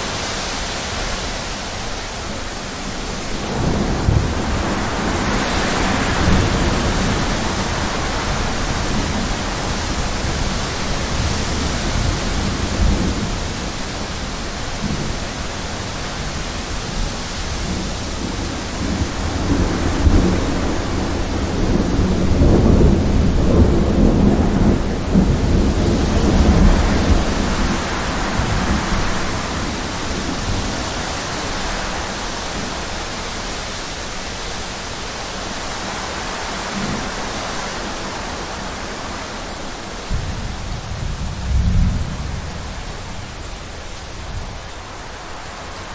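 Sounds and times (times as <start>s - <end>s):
steady rain: 0.0s - 45.9s
rolling thunder: 17.5s - 32.1s, 40.0s - 43.5s.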